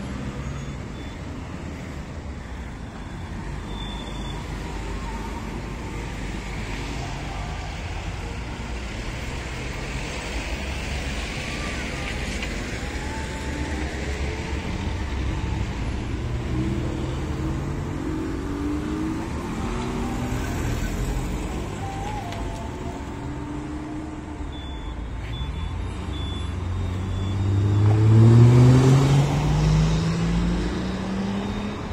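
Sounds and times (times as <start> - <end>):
cars driving past: 8.9 - 31.9
engine speeding up: 26.0 - 31.9.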